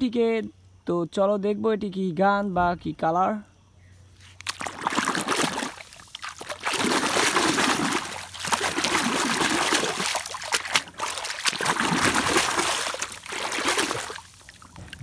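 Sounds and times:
water splashing and sloshing: 4.2 - 15.0.

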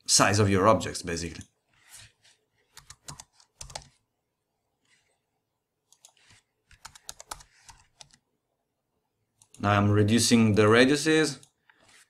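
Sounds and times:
computer keyboard typing: 1.8 - 4.0, 5.8 - 8.2.

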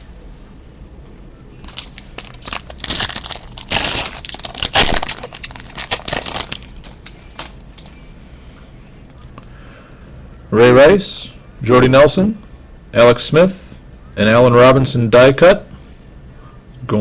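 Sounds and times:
card pack wrapper crinkling and tearing: 1.6 - 8.0.

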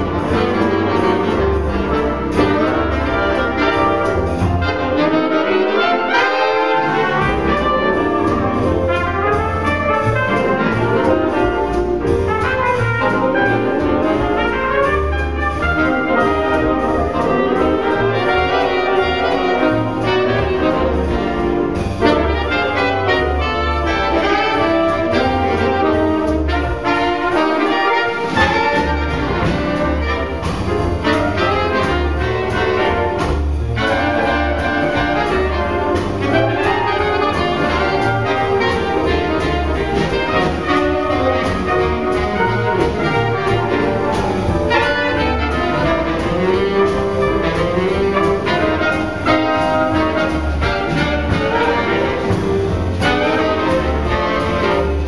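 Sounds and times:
drums: 0.0 - 55.0
piano: 0.0 - 55.0
trumpet and trombone: 0.0 - 55.0
walking upright bass: 0.0 - 55.0.

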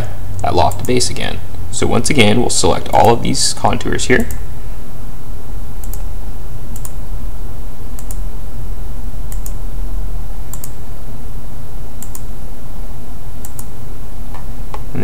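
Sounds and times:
steady low hum: 0.0 - 15.0
computer mouse clicking: 5.8 - 6.1, 6.7 - 7.0, 8.0 - 8.2, 9.3 - 9.6, 10.5 - 10.8, 12.0 - 12.3, 13.4 - 13.7.

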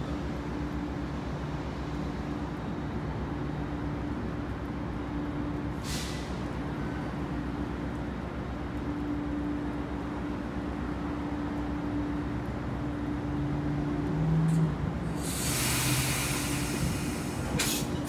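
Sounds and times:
train equipment hum and rumble: 0.0 - 18.0
air hiss burst: 15.2 - 17.9.

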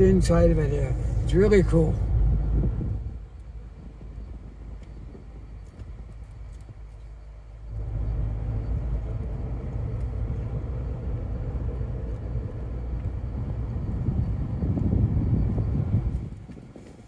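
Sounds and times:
road and engine rumble: 0.0 - 17.0.

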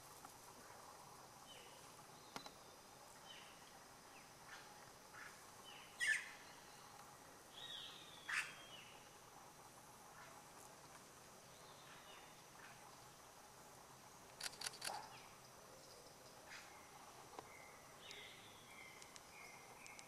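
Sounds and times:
faint bird chirps: 1.4 - 9.1, 14.4 - 20.0
sharp clicks: 14.3 - 15.0.

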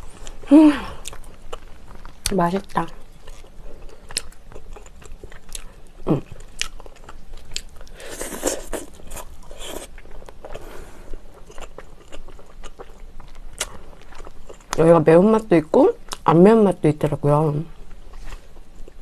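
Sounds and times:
biting and chewing meat: 0.0 - 14.8.

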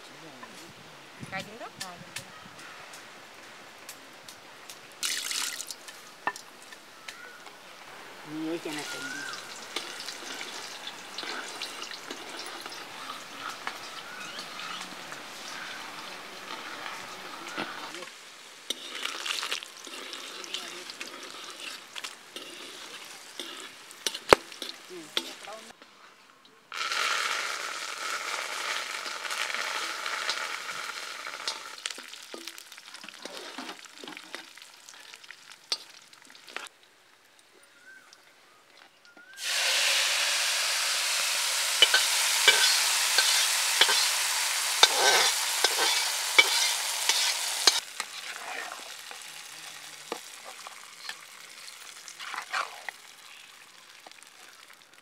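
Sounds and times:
chillies and garlic sizzling in oil: 0.0 - 26.1, 26.7 - 55.0
metal ladle scraping a wok: 8.6 - 18.0, 18.7 - 25.5, 26.8 - 34.5, 39.4 - 52.9.

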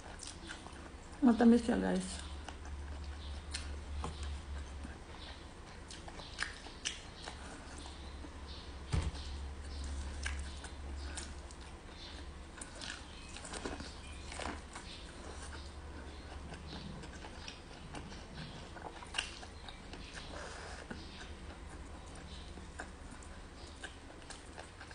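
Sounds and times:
chewing corn on the cob: 0.0 - 1.2, 2.0 - 8.6, 9.4 - 24.9
thump: 8.9 - 9.2.

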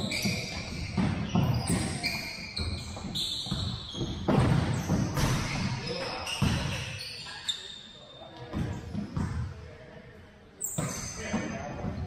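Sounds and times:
sneakers squeaking: 0.0 - 9.8, 10.5 - 12.0
ball kicked and bouncing on wood floor: 3.0 - 5.4.

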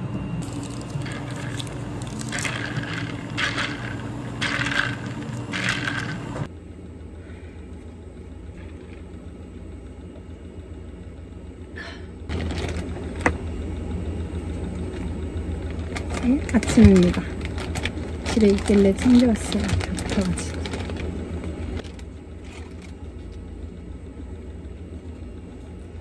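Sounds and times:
machine hum: 0.0 - 26.0
plastic bag rustling: 0.4 - 6.5, 12.3 - 13.4, 15.6 - 23.0.

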